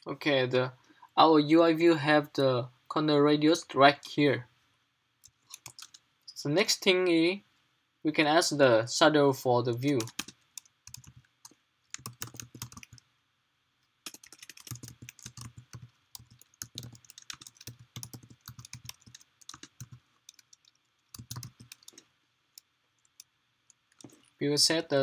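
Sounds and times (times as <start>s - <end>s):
typing on a computer keyboard: 5.2s - 6.0s, 9.8s - 13.0s, 14.0s - 22.0s, 22.6s - 24.3s.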